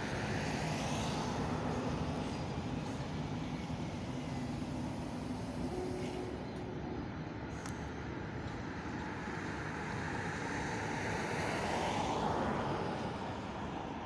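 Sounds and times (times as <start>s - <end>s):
train wheels rumbling on rails: 0.0s - 10.5s.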